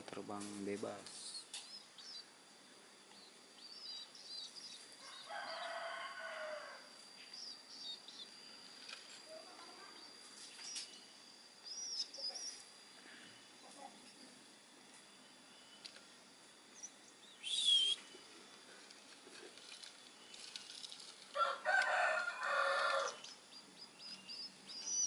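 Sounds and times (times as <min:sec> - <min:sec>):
faint steady high tone: 0:01.0 - 0:18.9
nestlings begging chirps: 0:01.1 - 0:14.4, 0:15.0 - 0:18.7, 0:19.8 - 0:25.0
rooster crowing: 0:05.0 - 0:07.0, 0:21.3 - 0:23.2.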